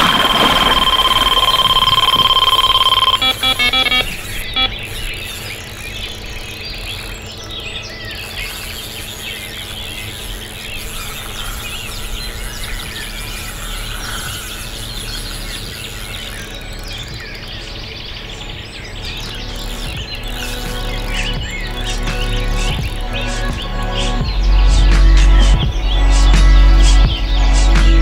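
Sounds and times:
songbirds chorus: 0:00.0 - 0:28.0.

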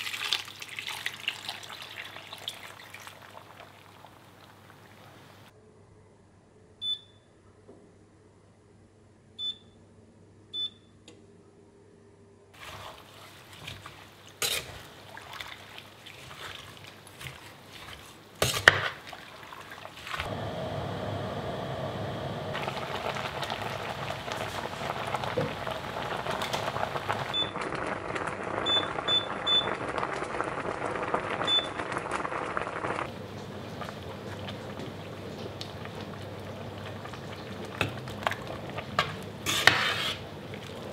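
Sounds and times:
chutney bubbling in pot: 0:21.9 - 0:40.9.

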